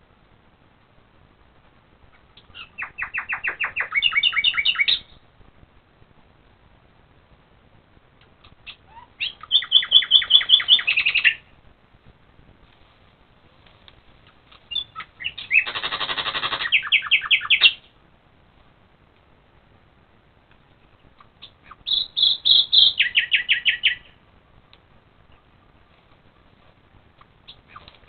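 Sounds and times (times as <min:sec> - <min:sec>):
songbird singing: 0:02.0 - 0:05.3, 0:08.3 - 0:11.6, 0:14.2 - 0:18.0, 0:20.6 - 0:24.3, 0:27.2 - 0:28.0.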